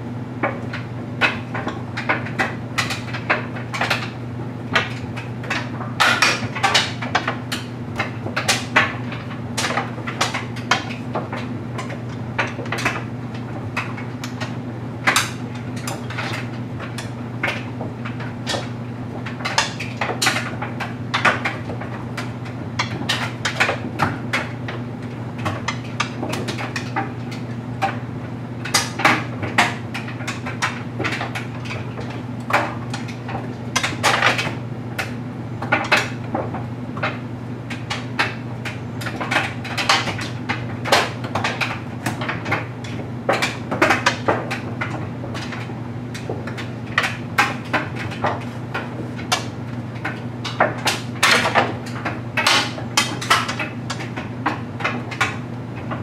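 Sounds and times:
clothes dryer humming: 0.0s - 56.0s.

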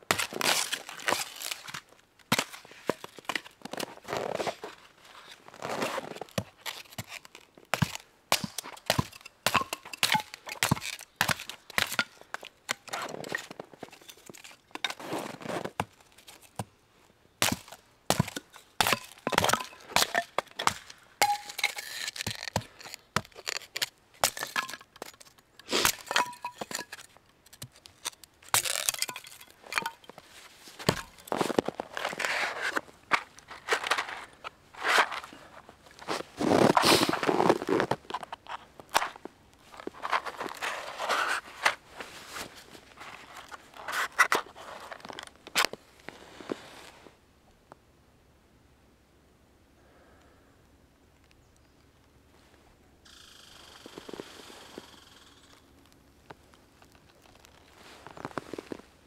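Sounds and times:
hatchet splitting kindling: 30.8s - 35.3s.

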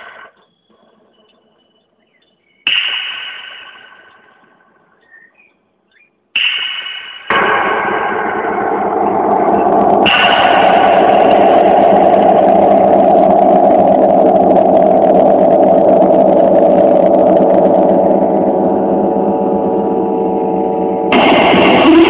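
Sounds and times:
string instrument drone: 7.3s - 22.0s.

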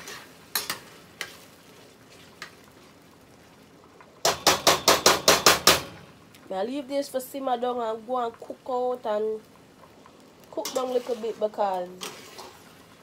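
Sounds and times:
spoon stirring in pot: 0.0s - 2.9s, 10.6s - 12.7s.

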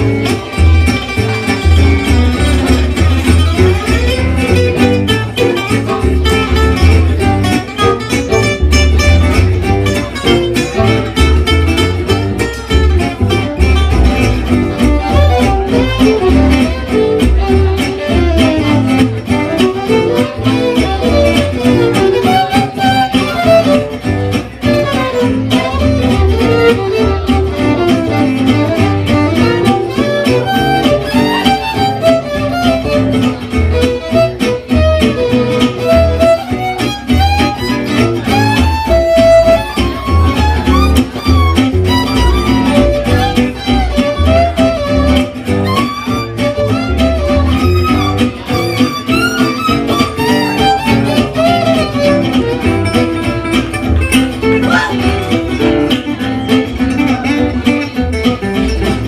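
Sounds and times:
bowed violin melody: 0.0s - 53.5s
acoustic guitars strumming: 0.0s - 59.0s
upright double bass: 0.0s - 59.0s.

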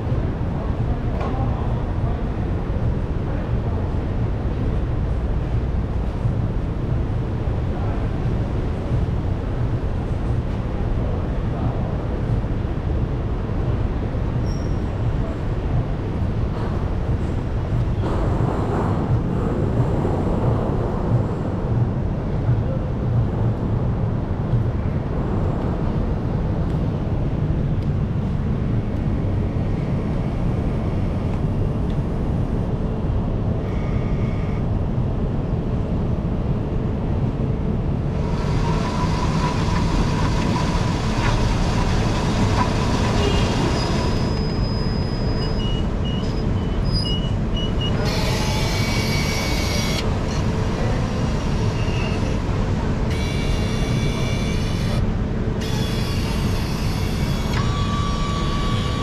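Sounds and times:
low mechanical hum: 0.0s - 59.0s
blender whirring: 38.2s - 44.1s.

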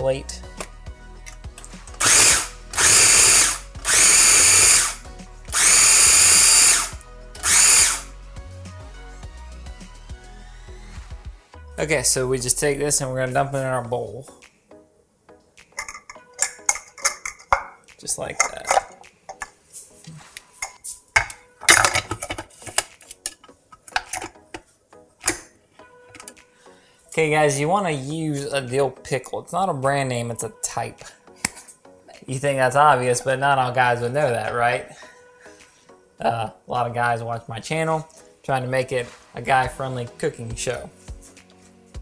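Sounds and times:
food chopper whirring: 2.0s - 8.1s
plastic knocks and clatters: 21.2s - 24.6s.

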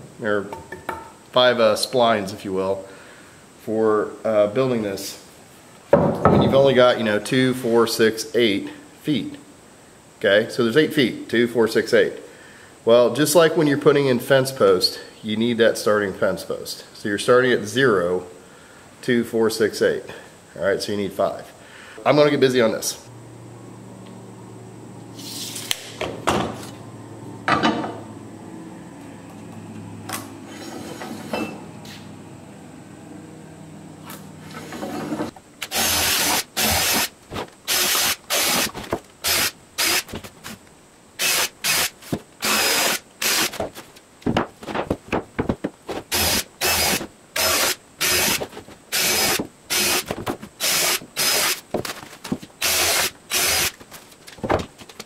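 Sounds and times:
cordless drill boring into wood: 35.6s - 37.1s, 37.7s - 40.1s, 41.2s - 43.6s, 46.1s - 51.6s, 52.6s - 53.8s.

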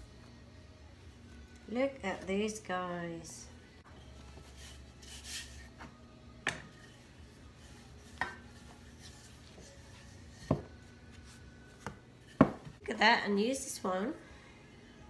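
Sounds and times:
rolling pin rubbing dough: 7.4s - 12.4s.

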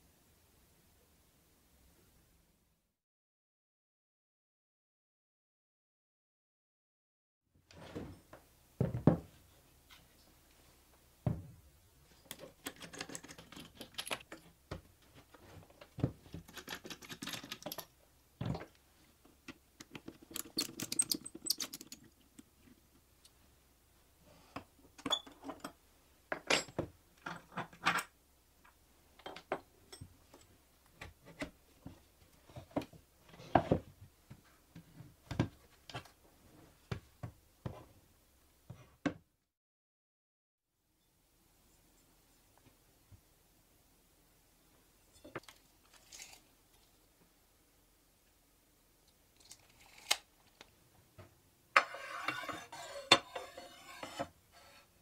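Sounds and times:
tools knocked on wooden bench: 8.8s - 9.3s
screwdriver turning screws: 20.3s - 22.0s.

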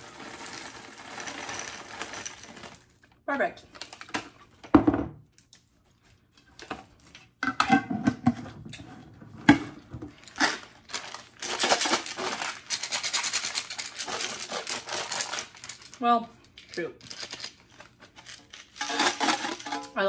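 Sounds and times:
candies rattling in a jar: 0.0s - 3.0s, 10.1s - 20.0s.

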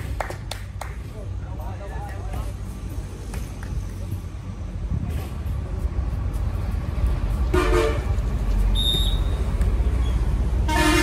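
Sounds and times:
horn blast: 7.5s - 8.2s, 10.6s - 11.0s
high thin whistle: 8.7s - 9.4s.

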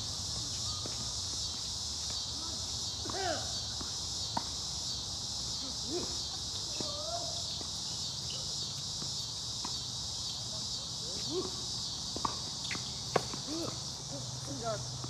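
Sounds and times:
crickets chirping: 0.0s - 15.0s
tennis balls being hit: 3.0s - 4.6s, 12.0s - 13.8s.

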